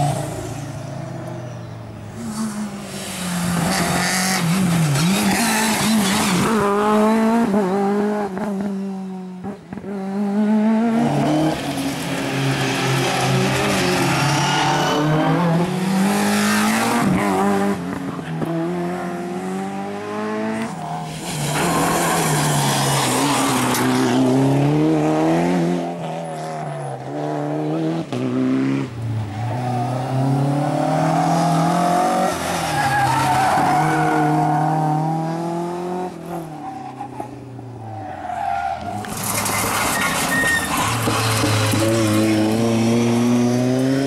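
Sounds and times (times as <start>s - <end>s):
rally car engines revving: 0.0s - 44.0s
tyre squeal: 37.8s - 42.0s.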